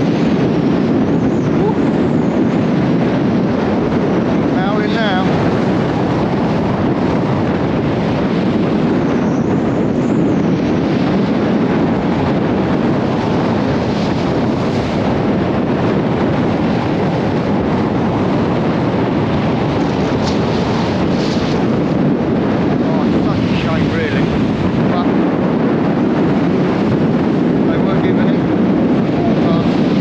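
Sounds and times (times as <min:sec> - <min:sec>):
strong wind buffeting microphone: 0:00.0 - 0:30.0.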